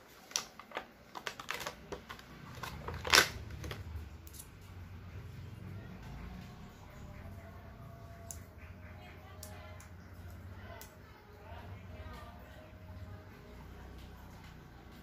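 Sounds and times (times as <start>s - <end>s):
plastic tray clicks and crinkles: 0.2s - 4.4s.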